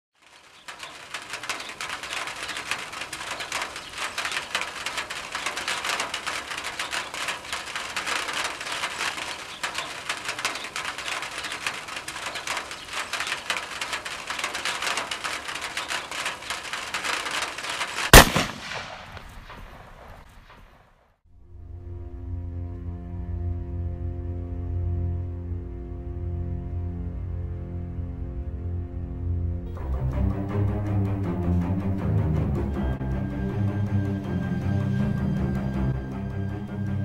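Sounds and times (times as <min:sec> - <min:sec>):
rain falling and dripping: 0:00.1 - 0:20.7, 0:29.7 - 0:37.0
loud gunshot: 0:18.1 - 0:20.3.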